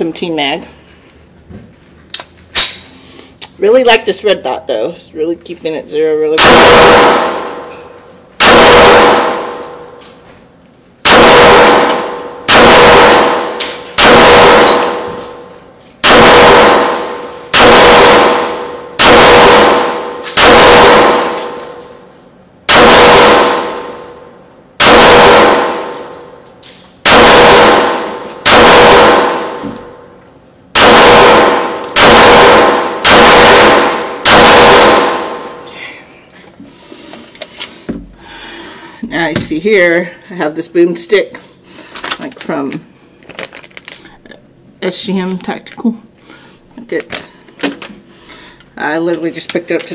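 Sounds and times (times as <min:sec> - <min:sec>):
pistol shots ringing indoors: 0:06.4 - 0:10.2, 0:11.0 - 0:35.6.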